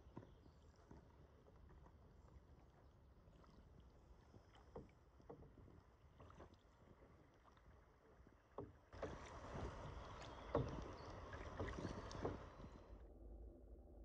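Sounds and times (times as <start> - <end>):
paddles dipping through water: 0.0 - 13.1
paddle knocking against hull: 4.6 - 6.6, 8.4 - 12.8.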